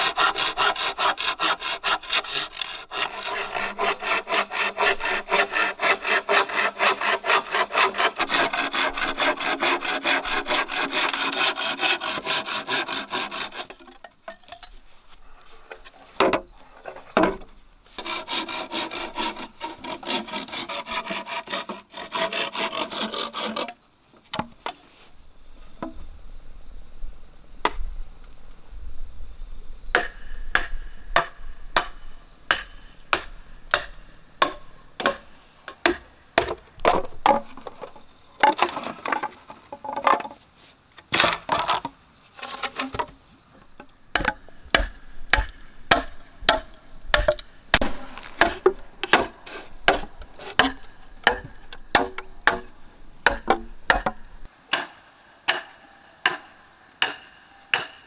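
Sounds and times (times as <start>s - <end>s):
machete chopping bamboo: 29.9s - 31.9s, 32.5s - 37.7s, 44.2s - 58.0s.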